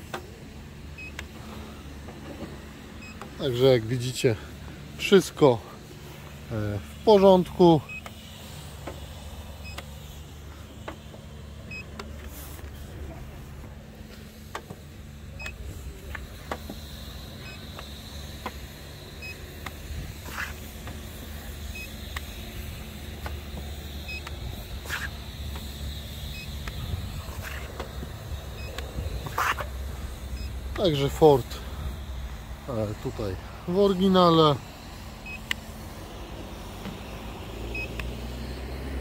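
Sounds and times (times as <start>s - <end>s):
steady low hum: 0.0s - 39.0s
gauge beeping: 0.9s - 1.2s, 3.0s - 4.5s, 7.1s - 8.2s, 9.6s - 9.9s, 11.7s - 12.1s, 15.3s - 15.7s, 17.4s - 17.9s, 19.2s - 19.4s, 21.6s - 22.8s, 23.8s - 32.4s, 35.2s - 35.6s, 37.7s - 38.0s.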